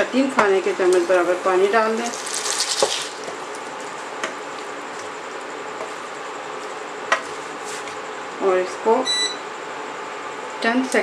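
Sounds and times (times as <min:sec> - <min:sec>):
food sizzling in a pan: 0:01.0 - 0:03.2.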